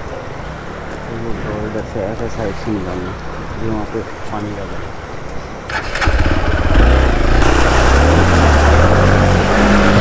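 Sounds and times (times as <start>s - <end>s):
motorcycle engine revving: 5.7s - 10.0s
churned water hissing: 7.2s - 10.0s.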